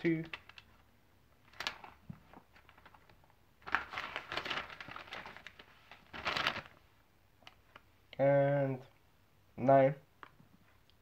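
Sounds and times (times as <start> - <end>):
paper pages rustling: 1.4 - 6.9.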